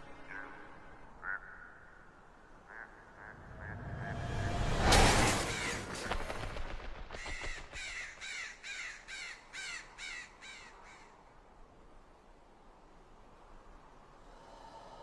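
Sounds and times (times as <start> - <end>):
harsh crow-like cawing: 7.1 - 11.1.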